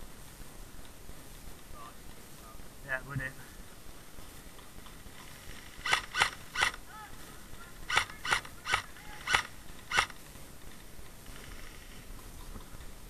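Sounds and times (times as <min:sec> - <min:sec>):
airsoft rifle shots: 0:05.3 - 0:06.9, 0:07.8 - 0:10.3.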